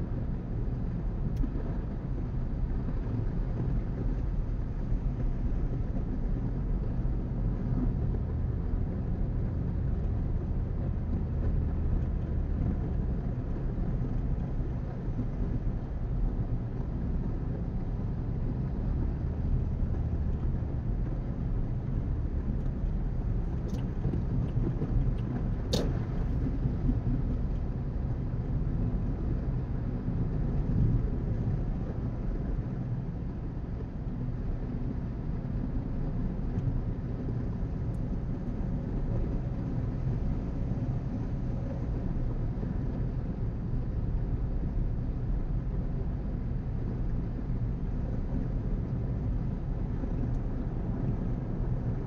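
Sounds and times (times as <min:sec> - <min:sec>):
car cabin road noise: 0:00.0 - 0:52.0
sharp click: 0:25.7 - 0:26.2.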